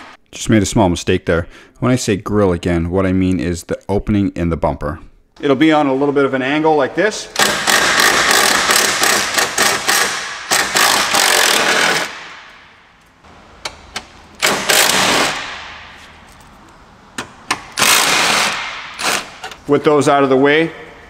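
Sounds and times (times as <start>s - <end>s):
power tool bursts: 7.4s - 12.3s, 14.4s - 15.6s, 17.8s - 19.4s.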